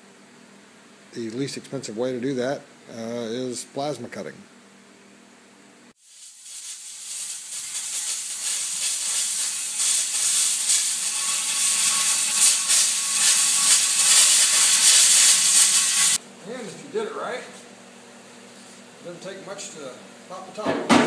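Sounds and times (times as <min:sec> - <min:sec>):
plasma cutter hissing: 0:06.0 - 0:16.2.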